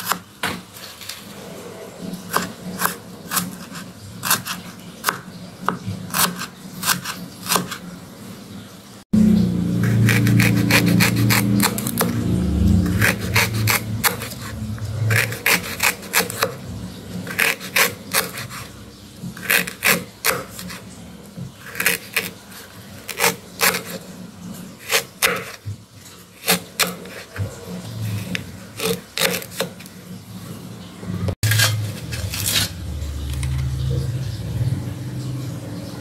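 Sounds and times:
low drone: 9.2 - 15.4, 31.0 - 36.0
knife chopping on wooden board: 24.8 - 25.6.

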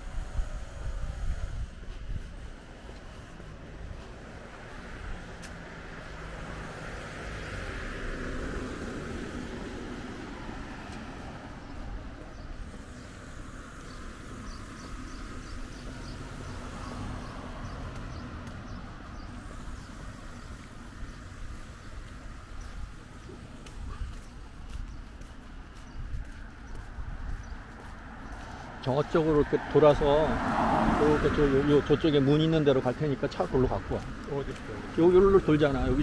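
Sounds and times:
low street rumble: 0.0 - 36.0
vehicle passing by: 0.0 - 36.0.

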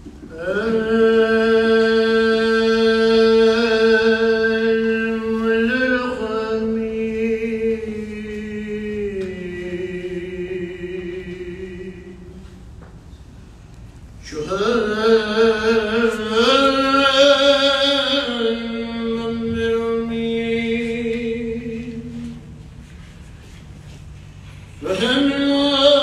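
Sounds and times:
man chanting prayer: 0.3 - 12.5, 14.2 - 22.6, 24.8 - 26.0.

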